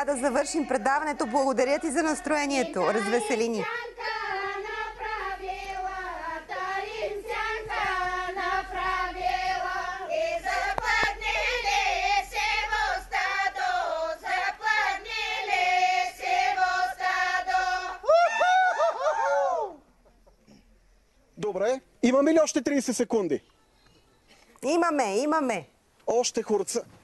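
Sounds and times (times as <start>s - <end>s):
women singing a cappella: 0.0s - 18.1s
loud voice gliding up and down: 2.4s - 9.1s.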